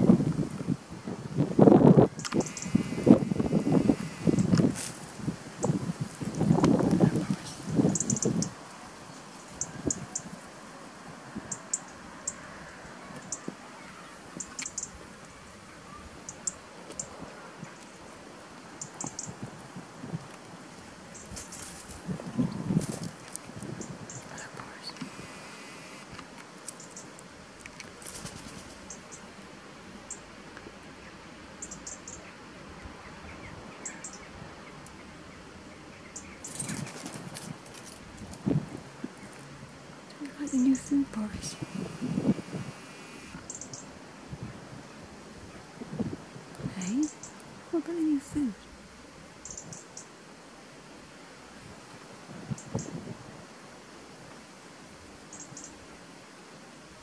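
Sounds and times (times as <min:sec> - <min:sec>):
outdoor background noise: 0:00.0 - 0:57.0
small birds chirping: 0:02.0 - 0:04.9, 0:05.5 - 0:10.4, 0:11.4 - 0:18.0, 0:18.7 - 0:19.4, 0:21.1 - 0:29.3, 0:31.0 - 0:37.9, 0:40.1 - 0:43.9, 0:46.6 - 0:48.8, 0:49.4 - 0:50.2, 0:52.5 - 0:53.0, 0:55.3 - 0:55.8
rustling and clicks: 0:21.2 - 0:25.2, 0:25.9 - 0:29.0, 0:36.4 - 0:38.5.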